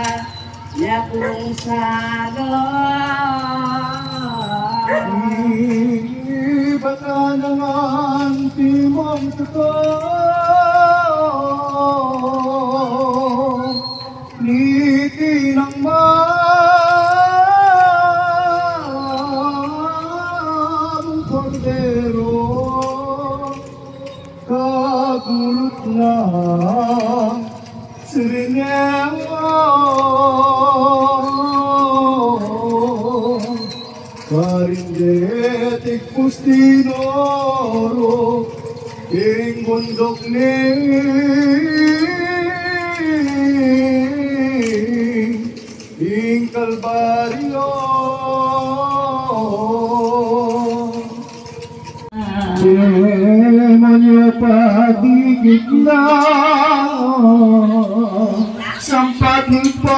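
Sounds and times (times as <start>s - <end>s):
person singing with vibrato: 0.0s - 23.8s, 52.0s - 59.9s.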